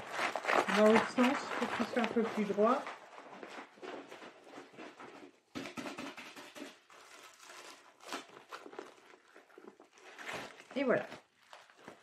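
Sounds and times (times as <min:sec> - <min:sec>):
plastic film crinkling: 0:00.0 - 0:12.0.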